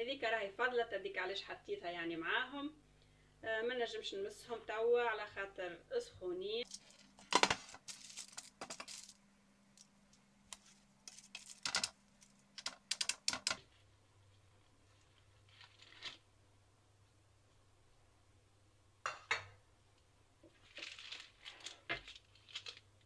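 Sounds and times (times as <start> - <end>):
clicks and knocks of baking mould: 12.6 - 13.6.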